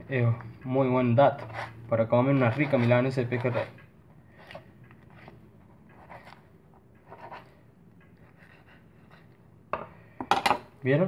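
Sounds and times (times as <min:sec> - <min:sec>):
knife scraping along fish bones: 0:01.4 - 0:06.4, 0:08.2 - 0:09.4.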